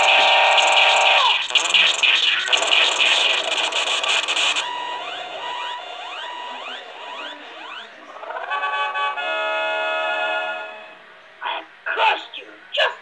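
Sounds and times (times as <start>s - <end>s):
harsh crackling noise: 0.0s - 6.8s
rising electronic chirps: 0.0s - 8.0s
steady electronic tones: 0.0s - 10.6s.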